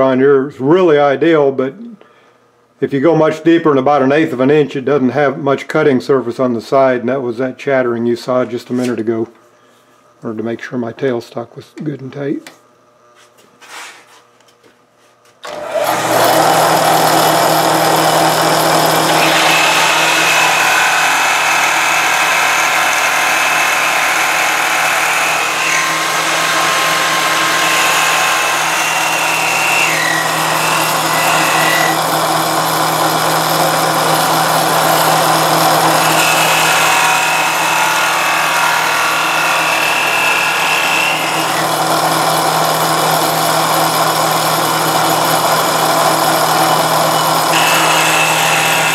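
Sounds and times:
cutting whine: 15.4s - 48.9s
lathe motor humming: 15.4s - 48.9s.

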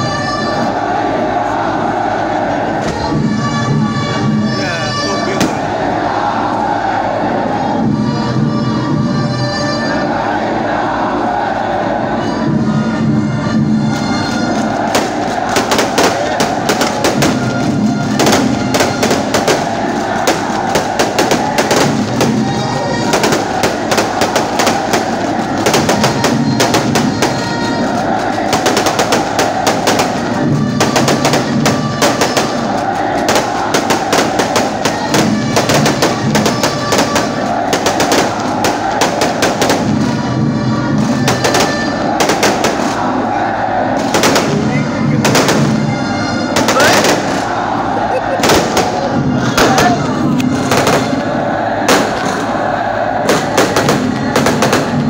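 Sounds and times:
fireworks bangs and crackles: 13.7s - 43.2s, 44.0s - 52.6s, 53.2s - 55.0s.

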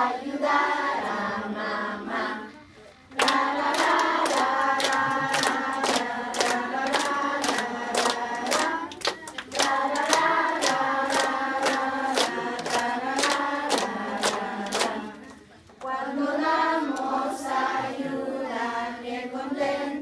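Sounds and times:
children's choir singing: 0.0s - 20.0s
hand claps: 3.1s - 16.0s.

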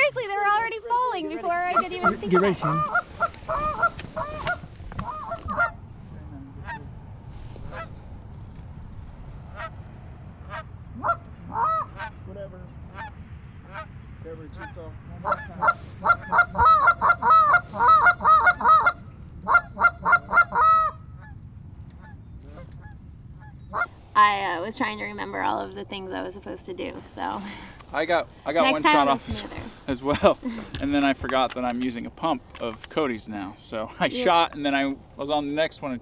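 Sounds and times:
geese honking: 1.3s - 5.9s, 6.5s - 6.9s, 7.6s - 7.9s, 9.5s - 9.8s, 10.4s - 12.2s, 12.9s - 13.9s, 14.6s - 21.4s, 22.0s - 24.1s.

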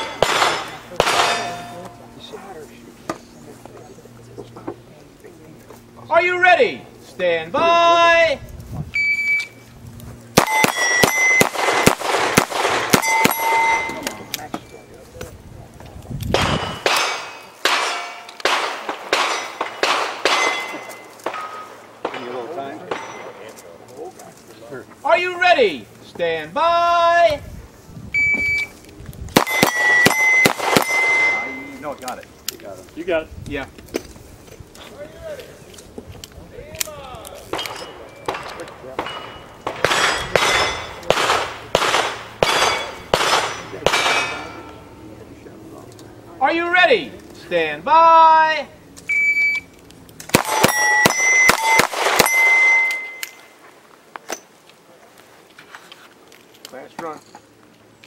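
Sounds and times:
handgun shots: 0.0s - 1.7s, 16.3s - 21.4s, 29.4s - 31.6s, 37.5s - 44.5s, 50.3s - 53.4s
bullets striking steel plates: 0.0s - 1.9s, 10.4s - 14.4s, 16.3s - 23.5s, 29.4s - 31.7s, 37.5s - 44.9s, 50.3s - 53.5s.

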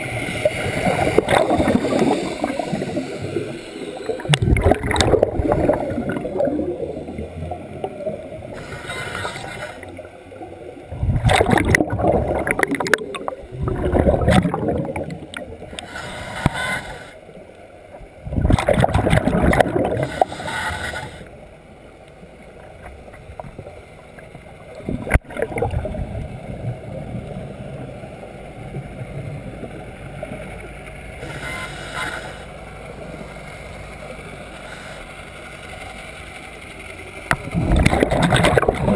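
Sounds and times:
bubbling exhaled air: 0.0s - 8.9s, 10.9s - 17.0s, 18.2s - 21.1s, 37.4s - 38.9s
regulator inhale hiss: 1.8s - 4.3s, 15.7s - 17.2s, 19.9s - 21.3s, 31.2s - 33.5s, 34.4s - 35.4s.

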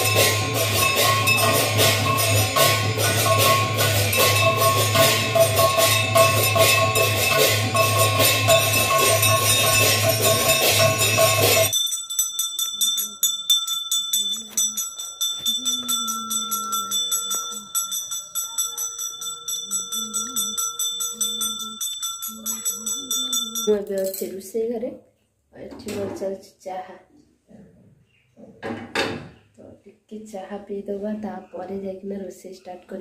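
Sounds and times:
temple bells and percussion clanging: 0.0s - 24.2s
hand bell ringing: 0.0s - 24.3s.

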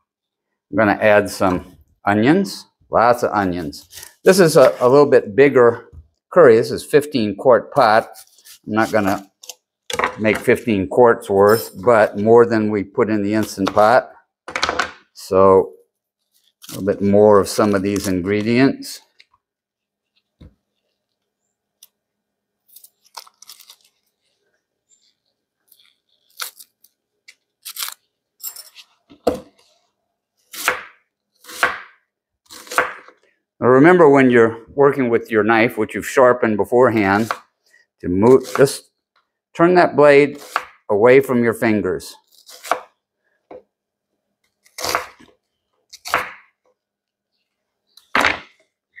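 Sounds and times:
onion skin tearing: 22.7s - 24.3s, 25.0s - 28.1s, 42.2s - 43.0s.

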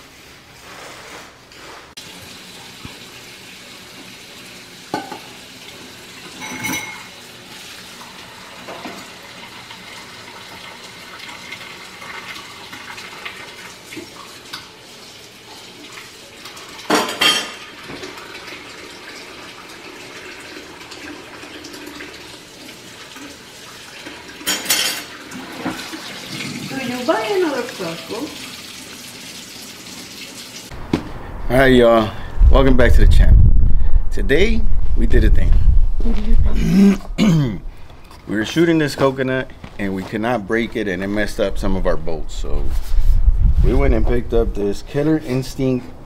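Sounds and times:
dishes clanking against sink: 4.9s - 5.4s, 6.3s - 7.1s, 16.9s - 18.2s, 24.4s - 26.7s.

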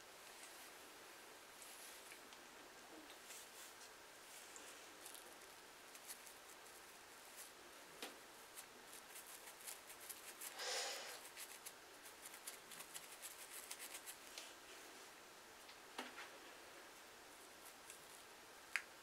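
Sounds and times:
comb scraping scalp: 3.2s - 7.6s, 8.5s - 14.3s.

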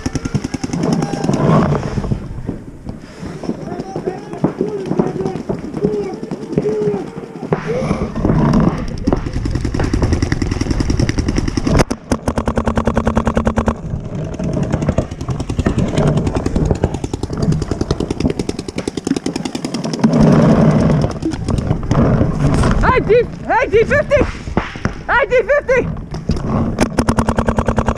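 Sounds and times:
paintball marker firing: 3.7s - 13.9s, 24.2s - 25.1s, 26.8s - 27.9s.

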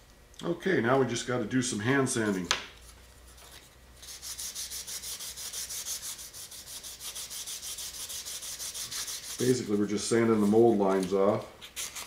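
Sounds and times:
sandpaper sanding strokes: 4.0s - 10.8s, 11.7s - 12.0s.

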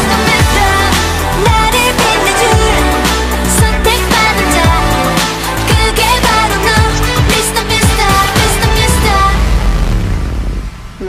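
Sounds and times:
dance pop track: 0.0s - 9.5s
person singing: 0.0s - 9.5s
booming kick drum: 2.5s - 3.0s, 3.6s - 3.9s, 6.8s - 10.8s.

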